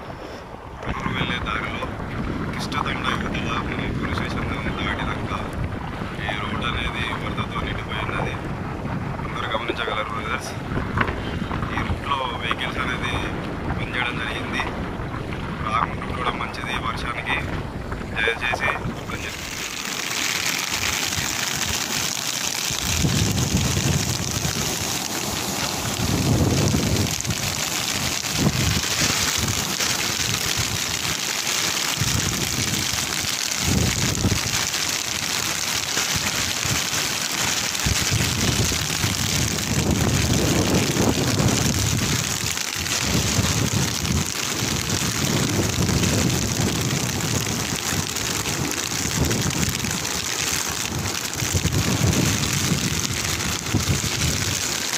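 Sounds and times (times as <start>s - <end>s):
wind buffeting microphone: 0.0s - 19.8s, 22.7s - 31.1s, 32.0s - 34.7s, 37.8s - 54.8s
steady rain: 18.3s - 54.9s.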